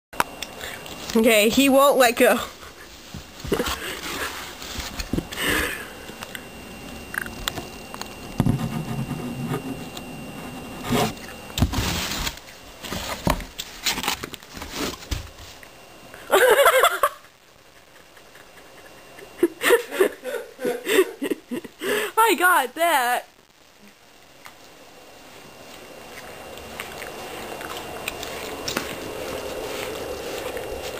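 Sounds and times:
person's voice: 0:01.1 - 0:02.5, 0:22.2 - 0:23.3
kitten scratching cardboard box: 0:08.3 - 0:15.1.

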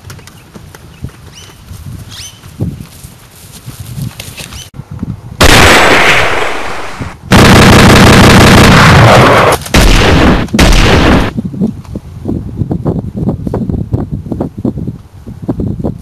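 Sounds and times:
distorted automatic gunfire: 0:05.4 - 0:11.3.

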